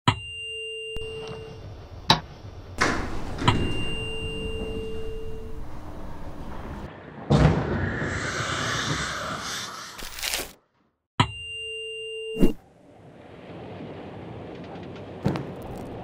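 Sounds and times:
steady pure electronic tones: 0:02.8 - 0:06.9
rushing noisy wash: 0:07.8 - 0:10.0.

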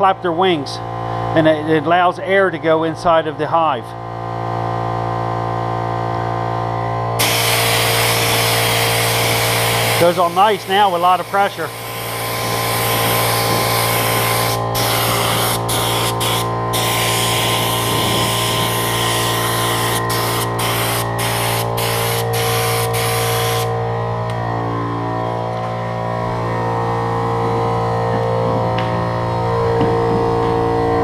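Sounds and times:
air compressor humming: 0:04.0 - 0:31.0
spray gun hissing: 0:07.2 - 0:23.7.

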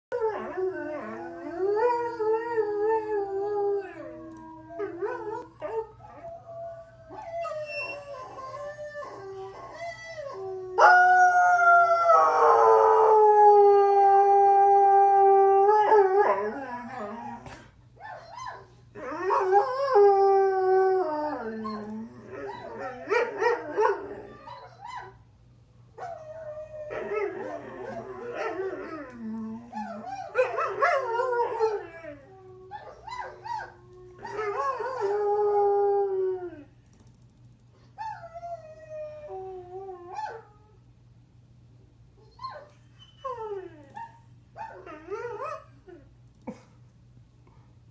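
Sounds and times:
dog howling: 0:00.1 - 0:17.6, 0:18.2 - 0:25.2, 0:26.0 - 0:36.7.

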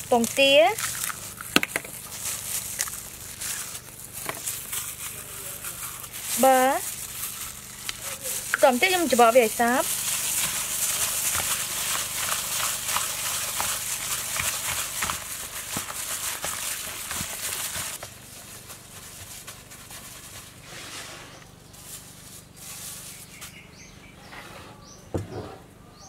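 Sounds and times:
gloved hand kneading wet meat: 0:00.0 - 0:20.6
plastic glove crinkling: 0:00.0 - 0:20.7, 0:21.5 - 0:23.7.

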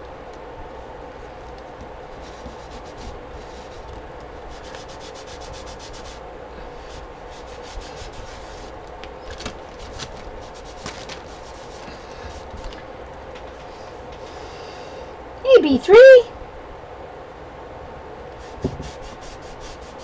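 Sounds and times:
wipe scrubbing paper: 0:02.1 - 0:08.8, 0:09.5 - 0:12.7, 0:18.4 - 0:20.0.

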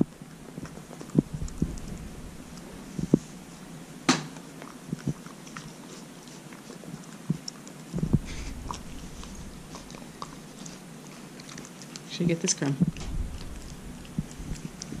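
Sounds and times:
dog chewing a treat: 0:00.0 - 0:15.0
dog's jaws clicking and smacking: 0:04.3 - 0:12.1, 0:12.8 - 0:15.0.

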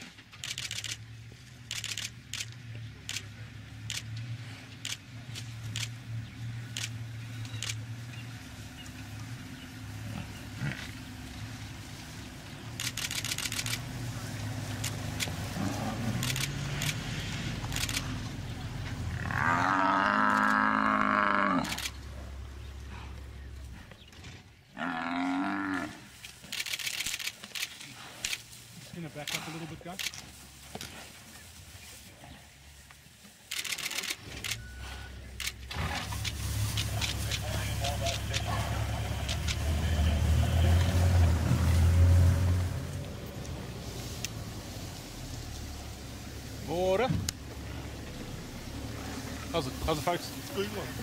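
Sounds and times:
camera shutter clicks: 0:00.4 - 0:01.0, 0:01.7 - 0:03.2, 0:12.8 - 0:13.8, 0:16.2 - 0:17.0, 0:17.7 - 0:18.2, 0:21.6 - 0:22.0, 0:26.4 - 0:28.4, 0:33.5 - 0:34.6
buffalo bellowing: 0:08.2 - 0:11.9, 0:12.8 - 0:23.5, 0:24.7 - 0:26.1, 0:34.6 - 0:43.5.

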